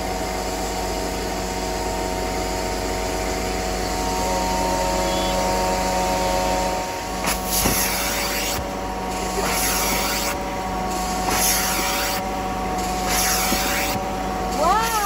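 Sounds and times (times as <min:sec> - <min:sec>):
carpet extractor motor whine: 0:00.0 - 0:15.0
hiss of spray and suction: 0:07.3 - 0:12.2.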